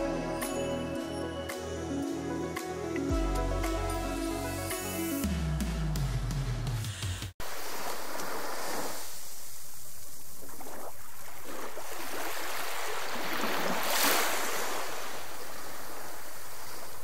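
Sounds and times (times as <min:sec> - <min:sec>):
choppy sea water: 0:07.4 - 0:17.0.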